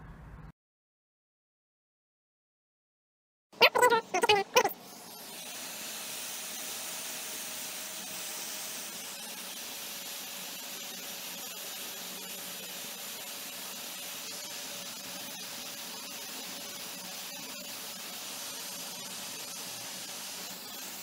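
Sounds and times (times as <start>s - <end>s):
hot air gun hissing: 4.8s - 21.0s.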